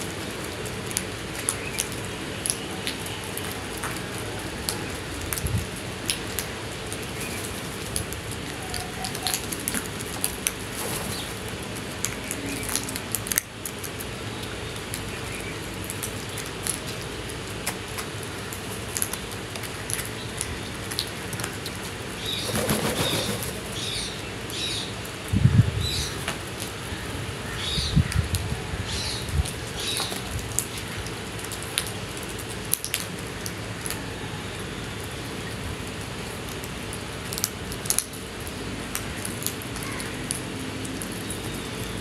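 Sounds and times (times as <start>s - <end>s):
beaks pecking on concrete: 15.0s - 24.9s
wings flapping: 22.4s - 23.8s.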